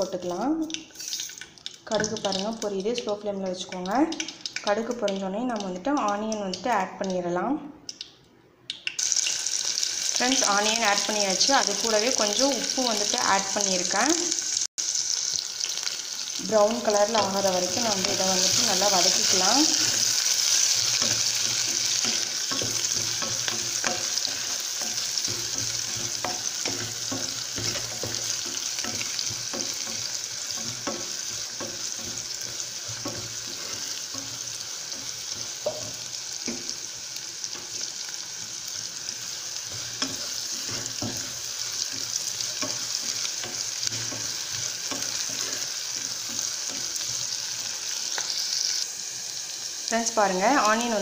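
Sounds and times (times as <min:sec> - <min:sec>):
onions sizzling in hot oil: 0:00.0 - 0:07.3, 0:08.8 - 0:51.0
spatula scraping and tapping pan: 0:17.1 - 0:36.8, 0:39.6 - 0:47.4.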